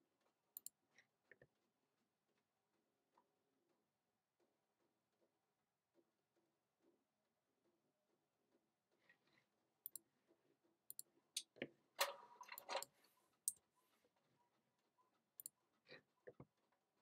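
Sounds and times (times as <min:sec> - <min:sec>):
computer mouse and keyboard clicks: 0:10.9 - 0:13.6.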